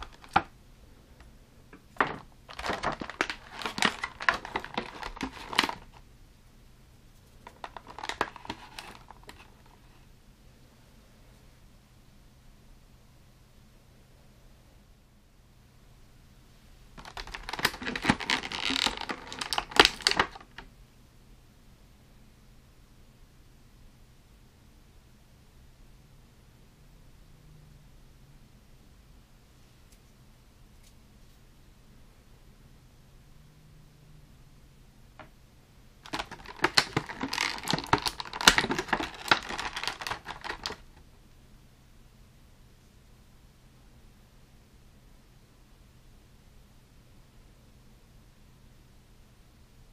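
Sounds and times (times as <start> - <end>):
plastic tray clicking and crackling: 0.0 - 0.5, 1.8 - 6.0, 7.4 - 9.8, 17.0 - 20.6, 36.0 - 41.0.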